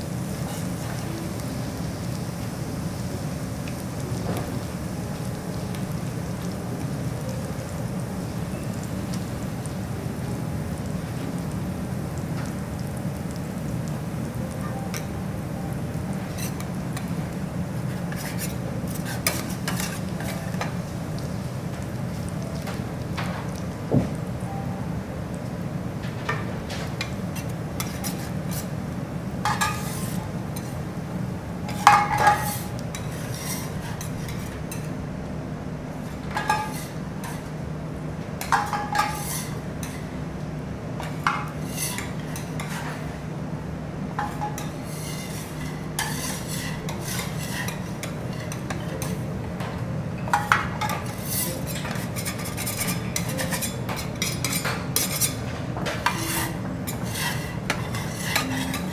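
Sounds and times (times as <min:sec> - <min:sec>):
metal spatulas scraping griddle: 0:16.3 - 0:16.7, 0:17.9 - 0:20.4, 0:27.4 - 0:28.7, 0:29.4 - 0:30.8, 0:31.7 - 0:34.6, 0:36.4 - 0:37.5, 0:38.5 - 0:40.0, 0:41.6 - 0:43.0, 0:44.2 - 0:49.2, 0:50.3 - 0:58.9.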